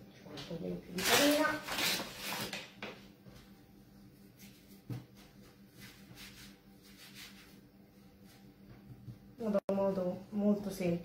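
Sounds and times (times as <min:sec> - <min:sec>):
hands rolling pastry on board: 0:04.2 - 0:07.6.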